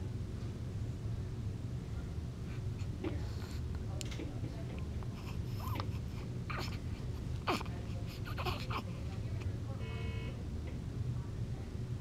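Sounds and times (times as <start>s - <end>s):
low steady hum: 0.0s - 12.0s
baby squeaking and whimpering: 5.2s - 8.9s
short steady beep: 9.8s - 10.4s.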